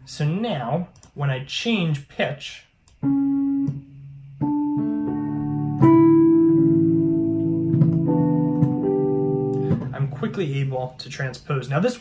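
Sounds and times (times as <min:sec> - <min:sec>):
piano and electric piano chords: 0:02.9 - 0:11.0.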